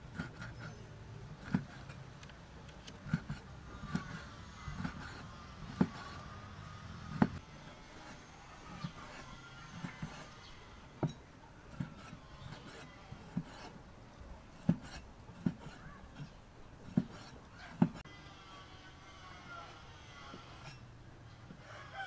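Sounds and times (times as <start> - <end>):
cleaver chopping on wooden board: 3.1 - 6.2, 7.1 - 7.4.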